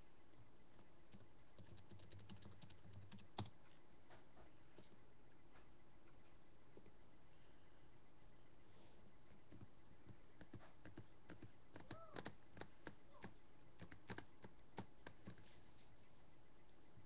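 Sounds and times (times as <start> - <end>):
typing on computer keyboard: 1.1 - 3.6, 9.5 - 15.4.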